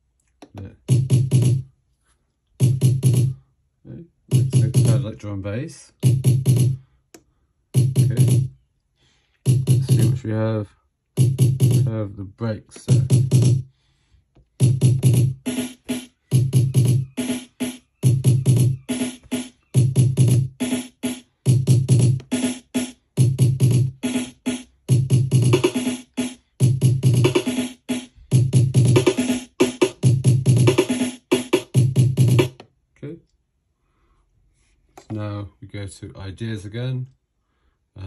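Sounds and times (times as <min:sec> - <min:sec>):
low kick drum: 0:07.8 - 0:08.5, 0:09.5 - 0:10.2.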